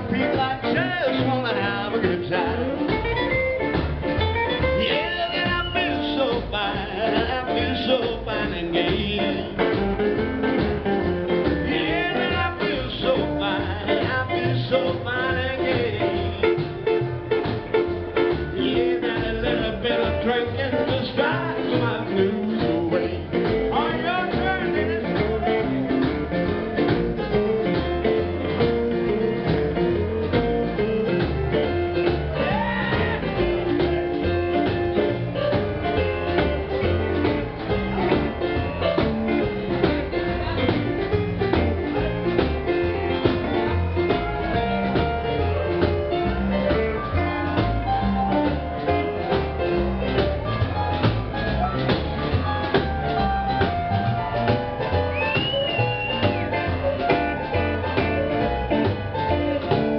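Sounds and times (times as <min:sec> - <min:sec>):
drums: 0:00.0 - 0:59.9
electric guitar: 0:00.0 - 0:59.9
upright bass: 0:00.0 - 0:59.9.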